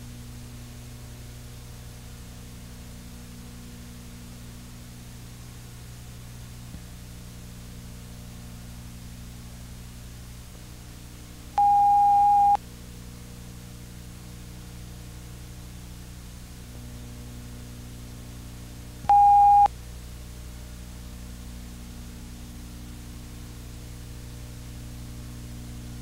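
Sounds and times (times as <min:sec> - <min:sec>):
electronic beeps: 0:11.6 - 0:12.6, 0:19.1 - 0:19.7.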